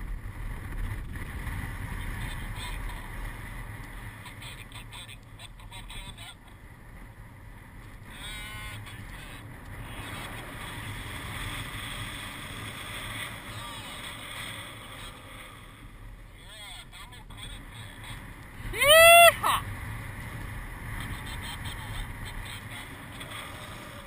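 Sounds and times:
wind rushing over microphone: 0:00.0 - 0:04.3.

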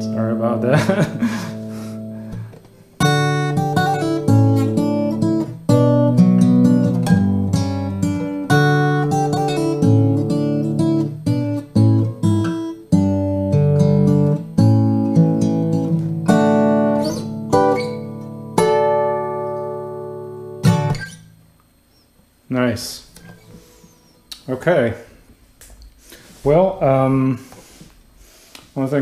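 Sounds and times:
fingerstyle acoustic guitar: 0:00.0 - 0:21.3.

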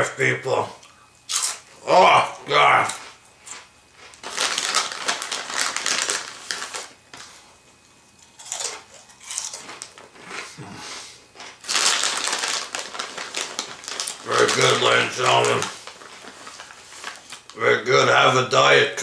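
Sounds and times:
crunchy snack being chewed: 0:01.3 - 0:01.6, 0:02.8 - 0:06.9, 0:08.2 - 0:10.6, 0:11.4 - 0:17.5.

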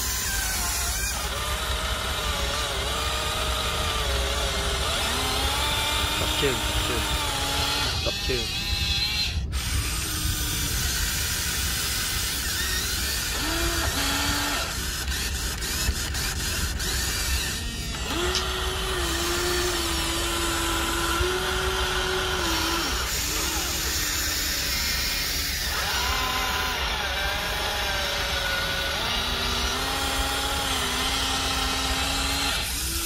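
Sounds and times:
electric motors whining: 0:00.0 - 0:33.0
steady low rumble: 0:05.4 - 0:24.7.

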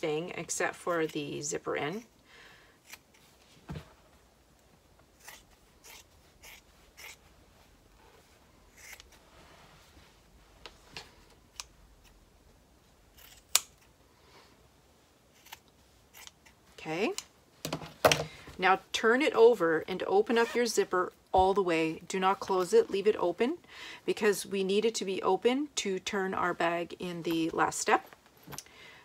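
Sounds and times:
scissors snipping fabric: 0:05.2 - 0:07.2, 0:08.7 - 0:09.1, 0:15.4 - 0:16.6.

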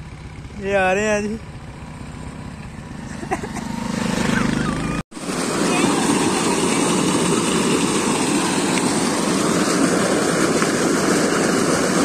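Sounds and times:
water gushing into tank: 0:05.2 - 0:12.0.

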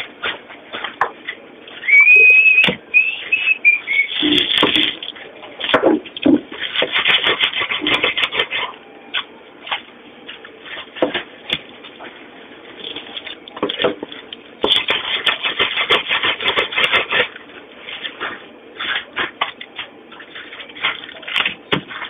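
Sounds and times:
rustling and clattering of hands: 0:12.8 - 0:22.0.

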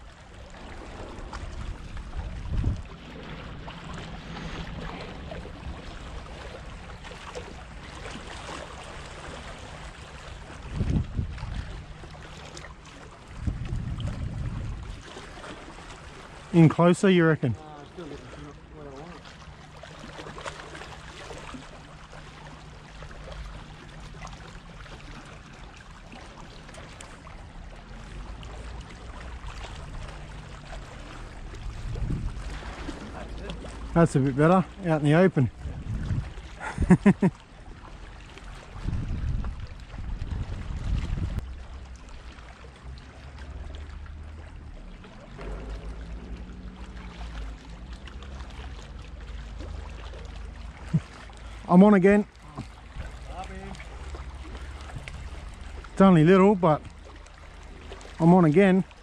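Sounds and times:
small waves washing over rocks: 0:00.0 - 0:59.0
wind on microphone: 0:01.0 - 0:06.0, 0:10.4 - 0:12.0, 0:13.3 - 0:15.1, 0:31.3 - 0:33.3, 0:35.4 - 0:37.0, 0:38.6 - 0:41.5, 0:54.8 - 0:55.7
low rumble: 0:27.5 - 0:34.0.

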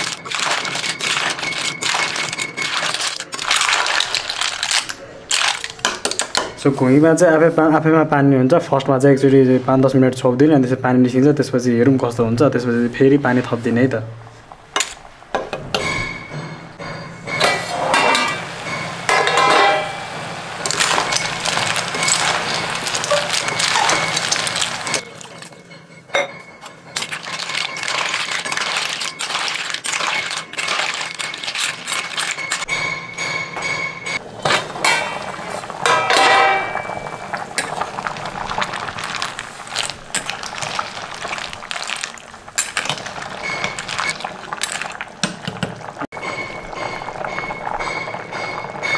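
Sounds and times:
ladle scraping metal pan: 0:15.7 - 0:25.6
sauce bubbling: 0:20.3 - 0:25.5, 0:27.0 - 0:32.7, 0:36.5 - 0:48.9.

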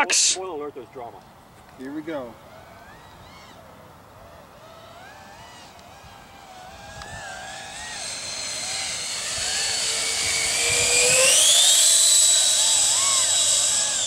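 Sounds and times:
electric ducted fans whining: 0:00.0 - 0:14.0.

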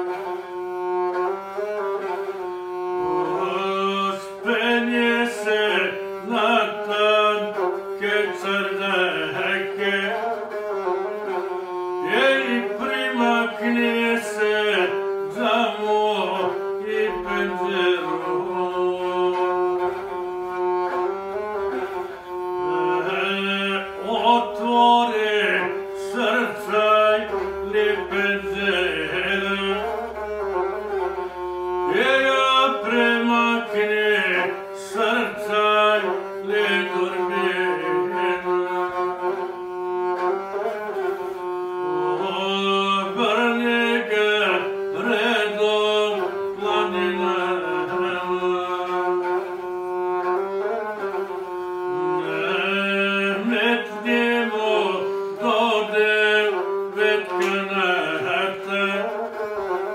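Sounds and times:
bowed single-string lute drone: 0:00.0 - 0:59.9
man singing: 0:03.2 - 0:10.5, 0:12.0 - 0:20.0, 0:22.7 - 0:30.5, 0:31.9 - 0:39.4, 0:42.0 - 0:49.6, 0:52.0 - 0:59.5.

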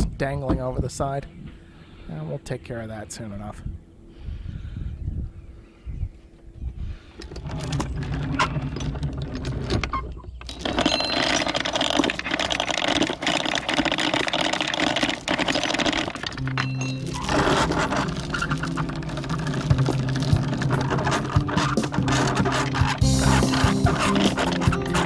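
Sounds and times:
anchor chain clattering: 0:07.2 - 0:25.0.

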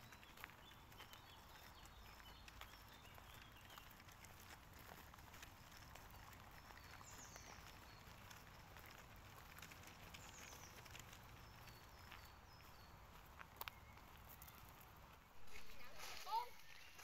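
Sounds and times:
footsteps on leaf litter: 0:00.0 - 0:17.0
faint high bird calls: 0:10.1 - 0:17.0.

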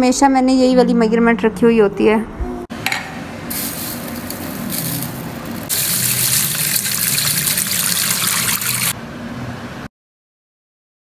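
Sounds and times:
water splashing into steel bowl: 0:03.5 - 0:09.0.

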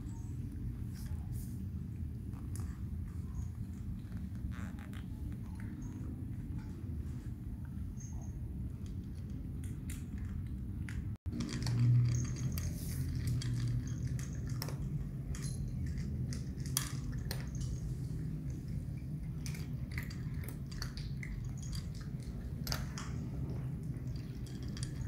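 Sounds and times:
steady low hum: 0:00.0 - 0:25.0
kitten crunching cat food: 0:13.2 - 0:25.0.

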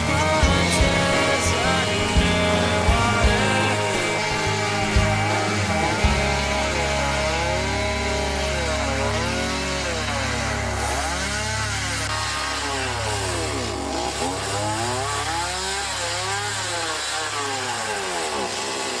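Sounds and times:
chainsaw revving while cutting wood: 0:00.0 - 0:19.0.

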